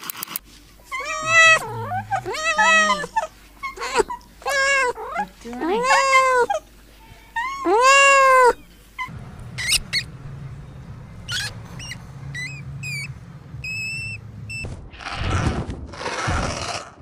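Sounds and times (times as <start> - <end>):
hamster pups squeaking: 0.9 - 6.6, 7.4 - 10.1, 11.2 - 14.7
kittens meowing: 0.9 - 10.1
low hum: 8.6 - 15.0.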